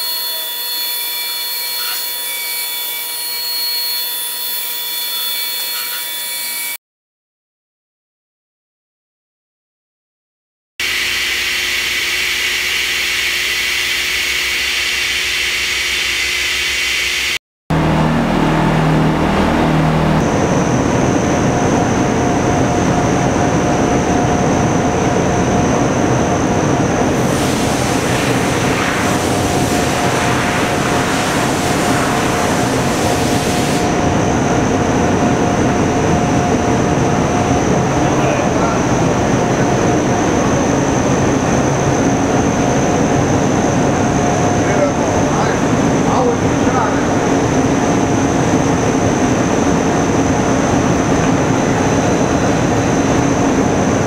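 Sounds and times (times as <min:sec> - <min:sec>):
thin steady whine: 0:10.8 - 0:54.0
machine hissing: 0:27.1 - 0:34.0.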